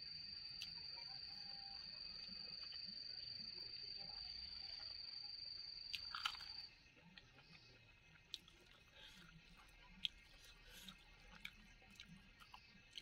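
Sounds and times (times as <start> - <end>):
soft chewing with small clicks: 0.3 - 13.0.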